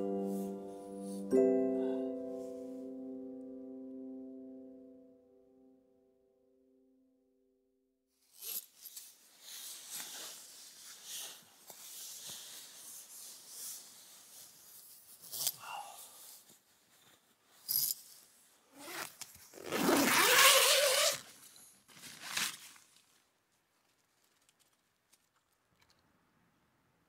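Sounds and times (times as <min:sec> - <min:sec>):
tent fabric rustling: 0:08.2 - 0:17.7, 0:18.7 - 0:25.3.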